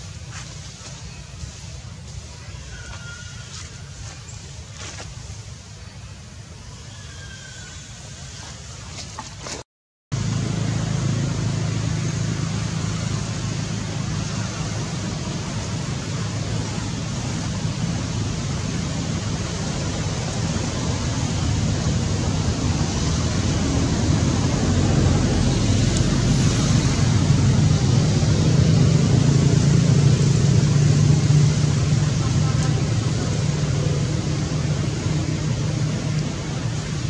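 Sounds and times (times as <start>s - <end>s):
rushing hiss: 0.0s - 8.9s
low rumble: 10.2s - 37.0s.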